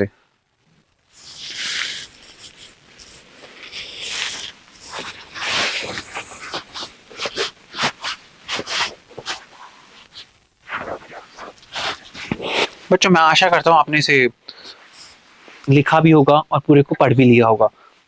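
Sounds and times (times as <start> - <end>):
rustling and breathy hissing: 0.2 - 13.0, 14.4 - 15.7.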